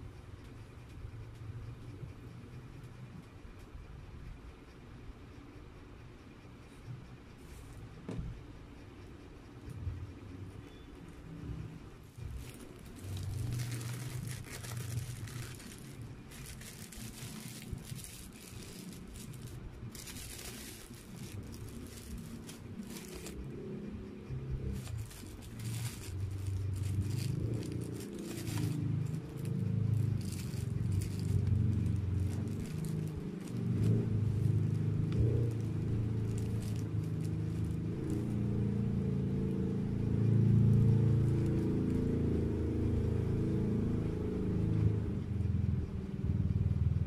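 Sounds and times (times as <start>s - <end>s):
plastic wrapper crinkling: 12.2s - 23.5s, 24.6s - 38.7s
low rumble: 12.2s - 44.4s.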